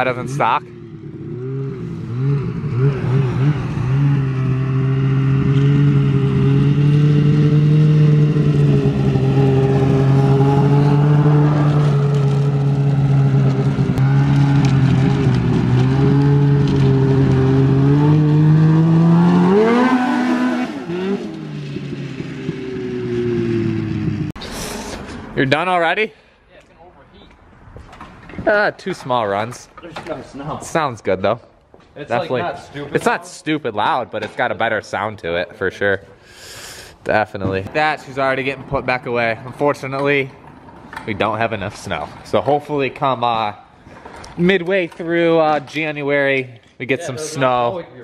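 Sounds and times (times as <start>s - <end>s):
snowmobile engine running: 0.1s - 24.3s.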